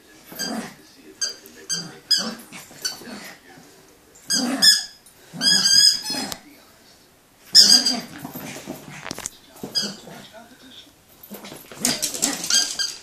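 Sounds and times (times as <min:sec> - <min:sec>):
dog growling playfully: 0:00.2 - 0:00.8, 0:01.7 - 0:03.4, 0:04.2 - 0:06.4, 0:07.6 - 0:10.3, 0:11.2 - 0:12.9
rubber toy squeaks: 0:00.3 - 0:03.0, 0:04.3 - 0:06.4, 0:07.5 - 0:08.5, 0:09.6 - 0:10.2, 0:11.3 - 0:13.0.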